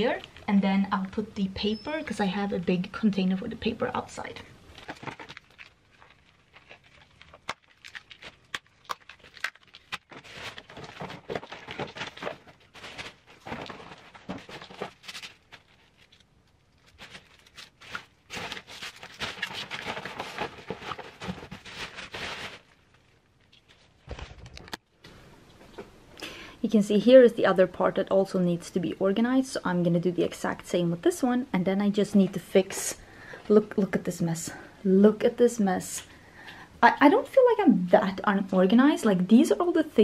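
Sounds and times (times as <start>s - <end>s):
plastic bag rustling and crinkling: 4.3s - 24.8s.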